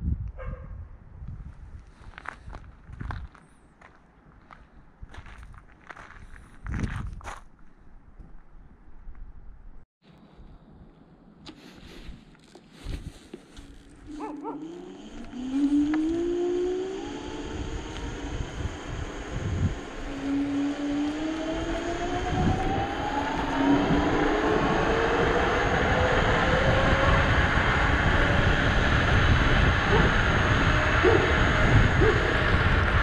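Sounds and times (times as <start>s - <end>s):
wind and tyre rush: 0.0s - 3.6s, 4.2s - 7.6s, 8.2s - 33.0s
electric motor whining: 13.6s - 33.0s.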